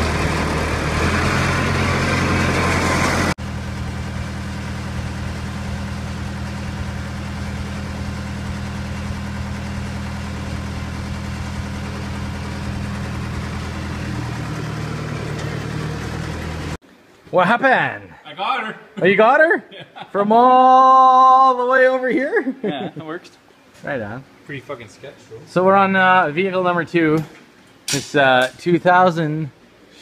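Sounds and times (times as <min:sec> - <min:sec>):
wheel loader engine idling: 0:00.0 - 0:16.8.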